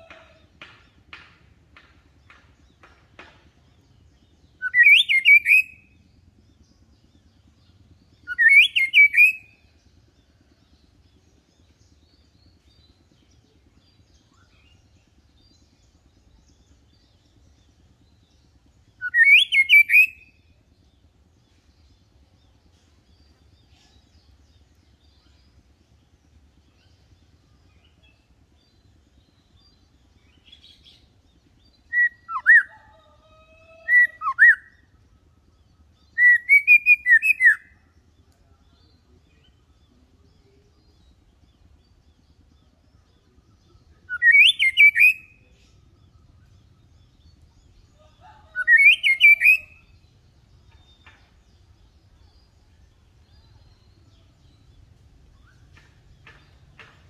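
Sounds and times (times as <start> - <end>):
bird singing whistled phrases: 4.6 - 5.9, 8.3 - 9.4, 19.0 - 20.2, 36.2 - 37.7, 44.0 - 45.4, 48.6 - 49.9.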